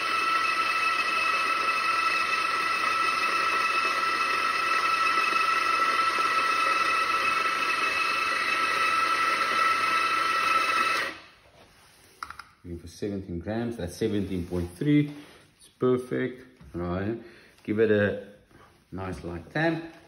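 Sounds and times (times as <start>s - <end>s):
coffee grinder grinding beans: 0.0s - 11.4s.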